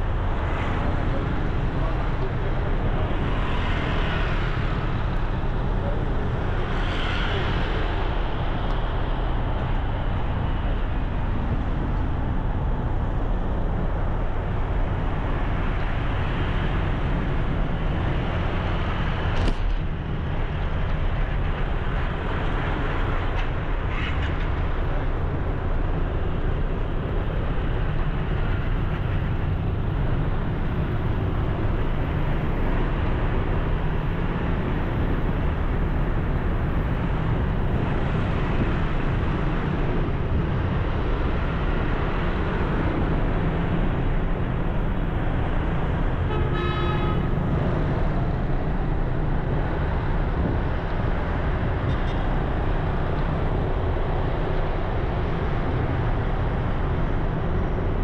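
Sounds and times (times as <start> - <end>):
road traffic noise: 0.0 - 58.0
vehicle horn: 46.3 - 47.4.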